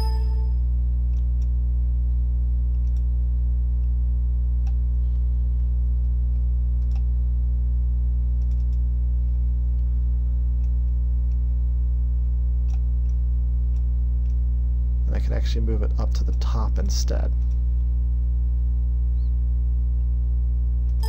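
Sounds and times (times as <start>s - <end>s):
low electrical hum: 0.0s - 21.0s
computer mouse clicks: 2.7s - 3.1s, 6.3s - 7.1s, 8.4s - 8.8s.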